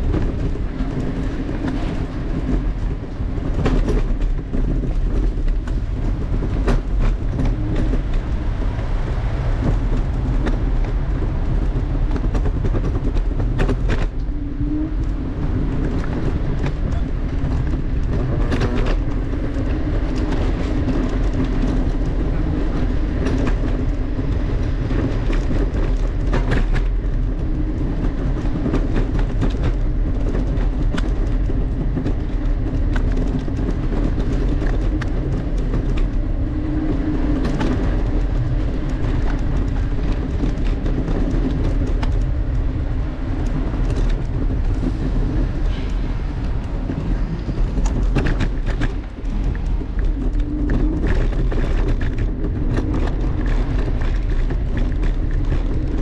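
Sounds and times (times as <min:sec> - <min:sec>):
vehicle rumble over pavement: 0:00.0 - 0:56.0.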